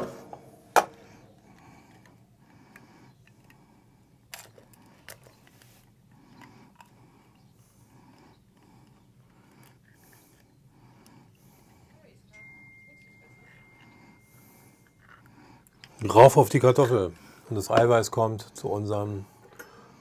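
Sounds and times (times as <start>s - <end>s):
eggshell clicks and scrapes: 4.3s - 11.2s.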